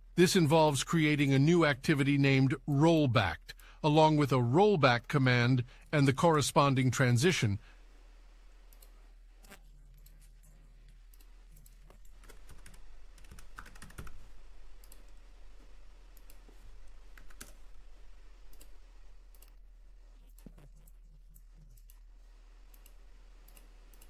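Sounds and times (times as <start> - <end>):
keyboard typing: 11.1 - 15.2, 17.1 - 17.7.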